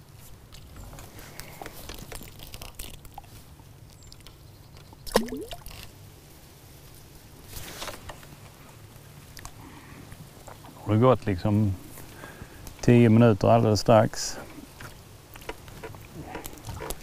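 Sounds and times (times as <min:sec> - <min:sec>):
fish plopping into water: 0:05.1 - 0:05.8.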